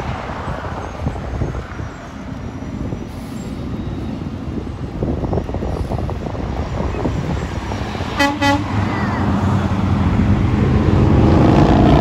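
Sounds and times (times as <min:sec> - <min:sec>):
roadside traffic: 0:00.0 - 0:12.0
passing vehicle engine: 0:06.8 - 0:12.0
vehicle horn toots: 0:08.2 - 0:08.8.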